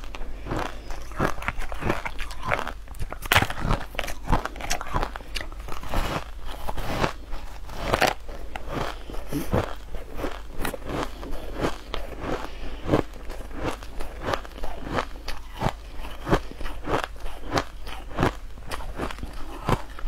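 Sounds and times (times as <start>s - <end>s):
ice crunching in mouth: 0.0s - 20.0s.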